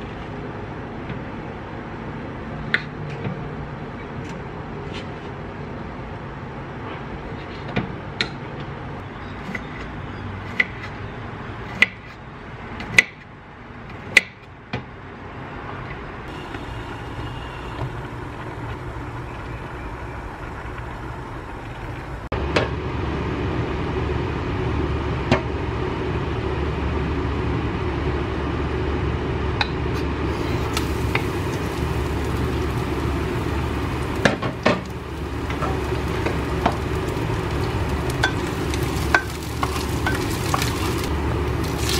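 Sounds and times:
water boiling in saucepan: 16.3 - 22.3, 30.3 - 41.9.

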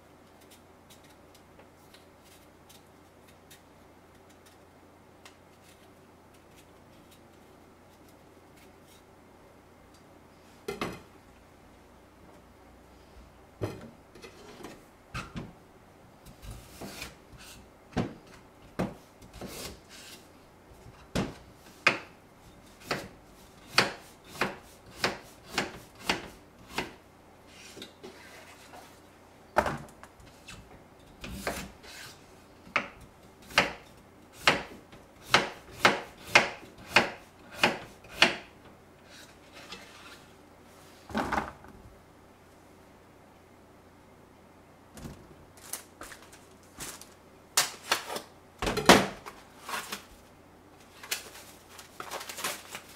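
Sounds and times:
knife chopping on wooden board: 23.7 - 27.0, 34.4 - 38.5.

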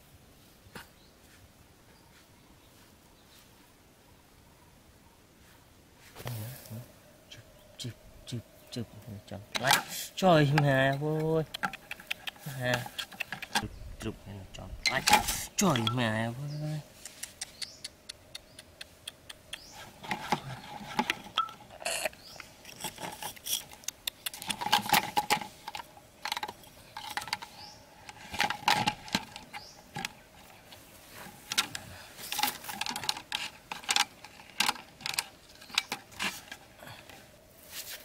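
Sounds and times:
bamboo sticks clicking: 10.5 - 13.6, 17.0 - 19.8, 23.5 - 27.5.

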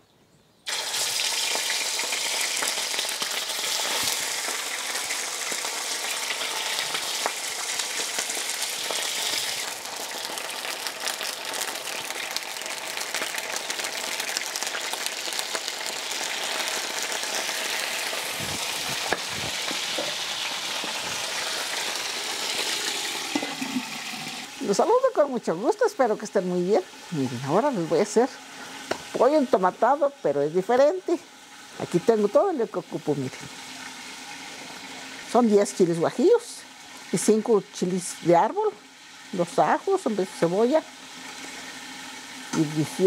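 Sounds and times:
meat sizzling with pops: 0.6 - 43.0.

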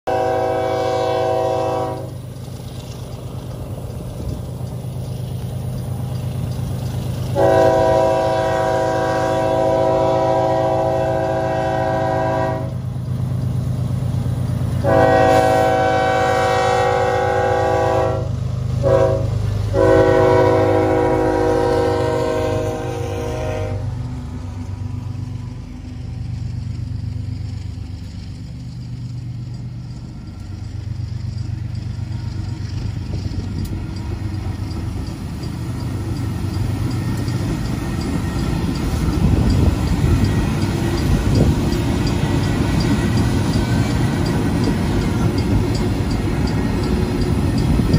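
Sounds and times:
rail noise of passing train: 0.0 - 47.9
locomotive horn chord: 0.1 - 2.2, 7.4 - 12.8, 14.8 - 24.0
diesel engines rumbling: 0.1 - 47.9.

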